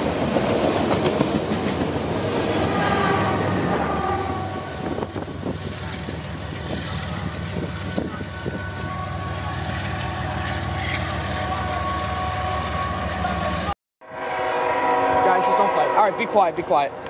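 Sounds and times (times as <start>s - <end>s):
train wheels clicking on rails: 0.0s - 2.2s.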